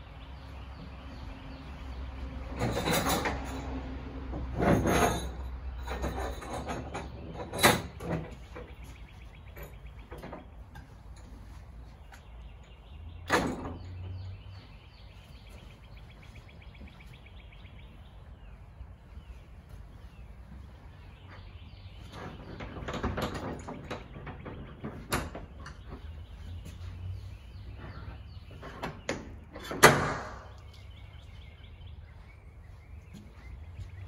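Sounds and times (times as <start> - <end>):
metal trailer partition clanking: 2.0 - 11.4, 12.1 - 14.4, 21.4 - 31.2.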